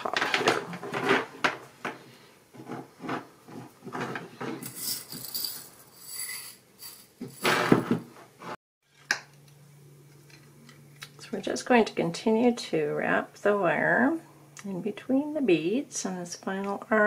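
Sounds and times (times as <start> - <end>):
beads rattling in a bowl: 4.6 - 7.4.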